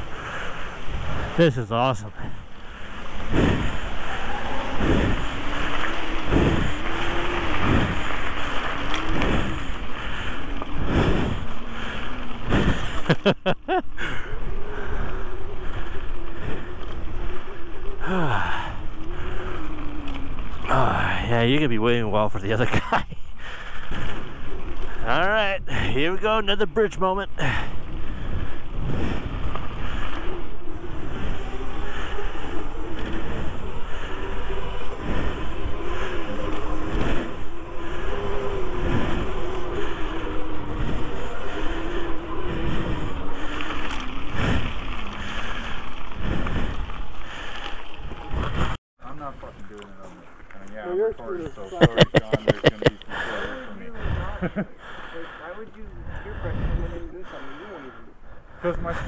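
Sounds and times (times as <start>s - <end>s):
wind rushing over microphone: 0.0s - 21.9s, 27.2s - 48.8s, 55.8s - 57.2s
tyres rolling on gravel: 0.0s - 59.0s
electric motor whine: 2.1s - 13.4s, 14.0s - 21.1s, 27.8s - 48.7s.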